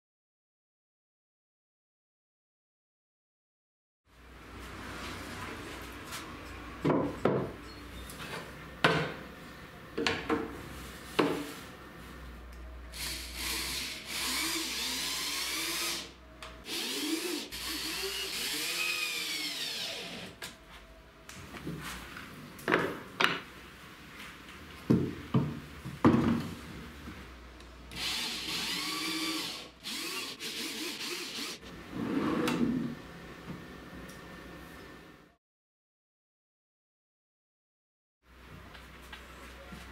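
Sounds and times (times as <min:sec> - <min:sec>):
electric drill driving screws: 0:13.0 - 0:16.1, 0:16.7 - 0:20.4, 0:27.9 - 0:31.6.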